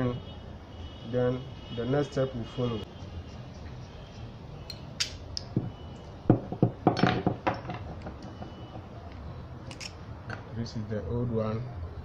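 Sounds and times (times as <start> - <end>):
metallic clicks of engine parts: 9.1 - 10.0.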